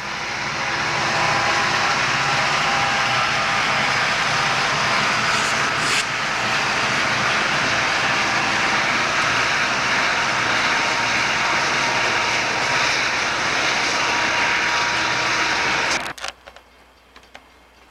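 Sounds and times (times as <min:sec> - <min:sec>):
freight train rolling slowly: 0:00.0 - 0:17.9.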